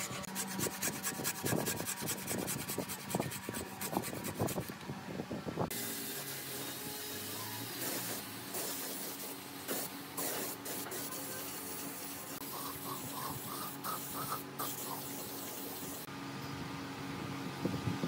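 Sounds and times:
spray gun hissing: 7.7 - 16.1.

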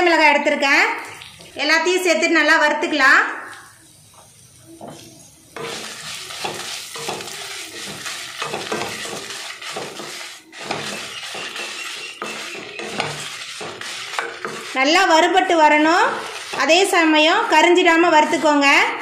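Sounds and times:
spatula stirring seeds in pan: 4.1 - 19.0.

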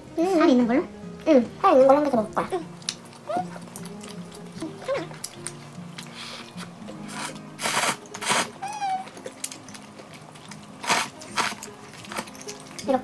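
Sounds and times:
soft background music: 0.0 - 13.0
slurping and chewing: 2.7 - 12.9.

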